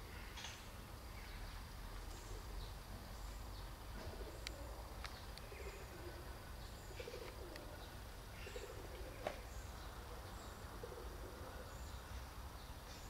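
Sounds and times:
small birds chirping: 0.0s - 13.0s
pigeons cooing: 3.9s - 12.0s.

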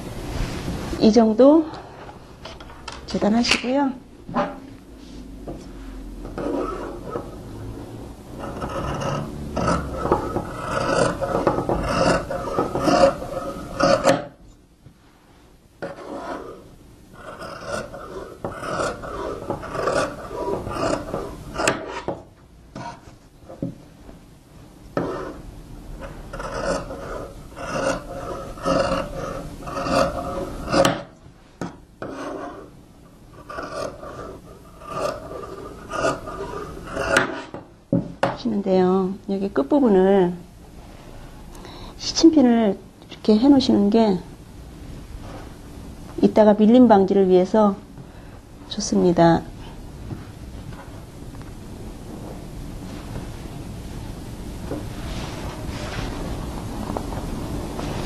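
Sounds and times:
fabric shears cutting cloth: 8.4s - 14.4s, 15.8s - 22.2s, 26.0s - 31.2s, 33.4s - 37.6s.

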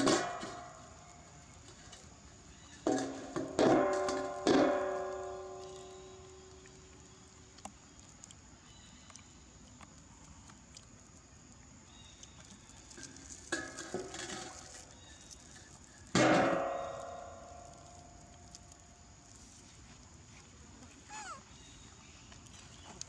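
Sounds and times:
metal basin clanking: 0.0s - 0.8s, 2.8s - 6.1s, 13.0s - 14.7s, 16.1s - 17.7s
loud ringing metal clang: 3.6s - 6.1s, 16.2s - 17.7s.

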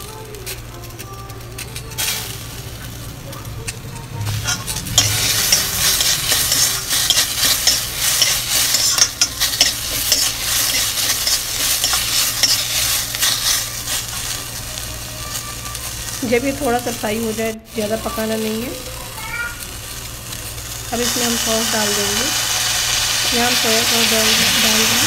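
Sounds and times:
vegetables sizzling in hot oil: 0.0s - 25.0s
metal spatula scraping pan: 4.2s - 14.4s.

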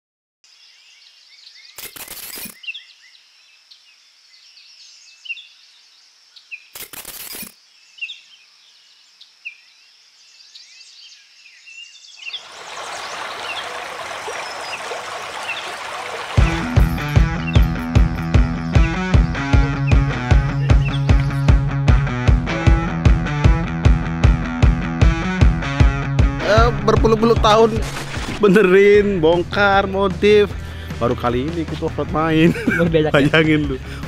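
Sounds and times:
birds chirping: 7.5s - 21.6s
river rapids rushing: 12.4s - 17.1s.

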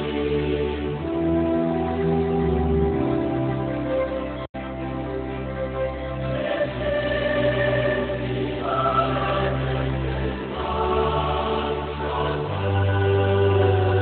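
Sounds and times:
choir singing held chords: 0.0s - 2.1s, 6.1s - 14.0s.

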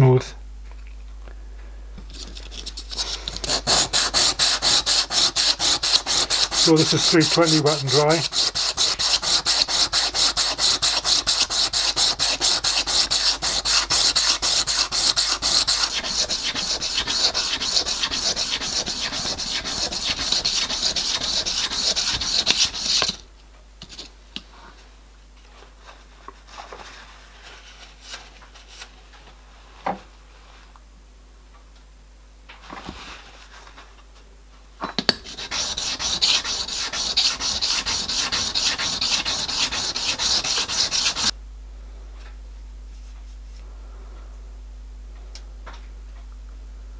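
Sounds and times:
metal scraping on abrasive paper: 2.1s - 23.2s, 35.3s - 41.3s.

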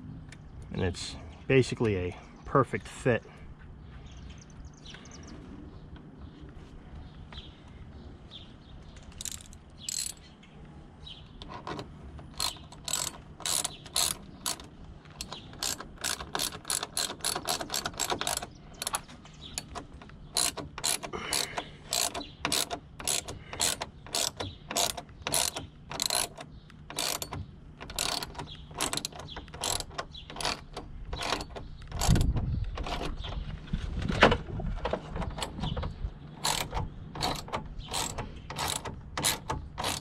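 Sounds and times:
ratchet wrench clicking: 9.1s - 10.2s, 11.5s - 33.0s, 36.4s - 40.0s.

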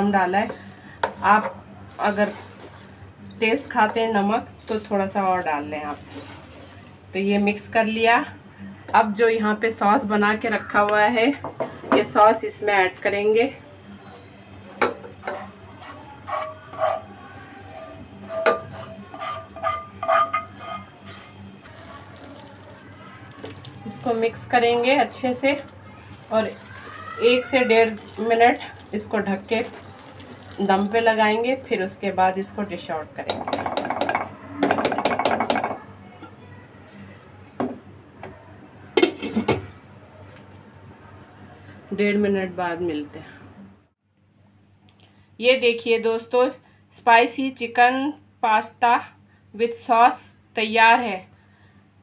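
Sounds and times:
spatula scraping frying pan: 5.9s - 6.8s, 15.2s - 22.4s
spatula knocking against pan: 33.2s - 35.8s.

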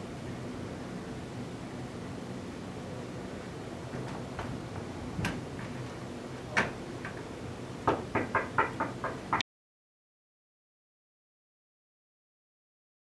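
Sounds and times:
knocking on a glass door: 7.8s - 9.4s.

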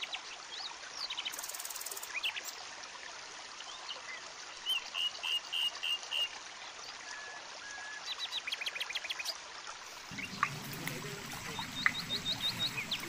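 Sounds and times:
stream water rushing: 0.0s - 13.0s
birds chirping: 7.1s - 13.0s
sharp bird notes: 10.2s - 13.0s.

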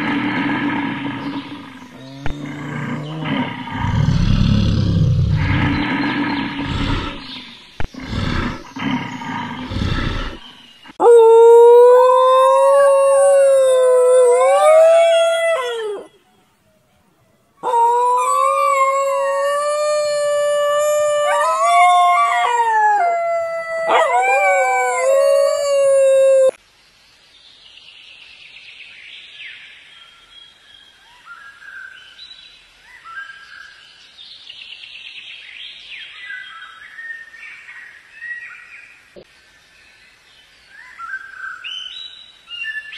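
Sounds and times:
rough animal roar: 0.0s - 16.1s, 17.6s - 26.6s
wolf howling: 6.7s - 7.2s, 11.0s - 16.2s, 17.6s - 26.6s.

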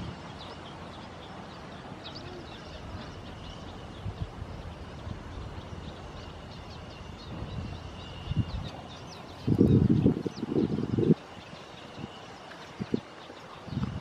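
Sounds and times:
small birds chirping: 0.0s - 14.0s.

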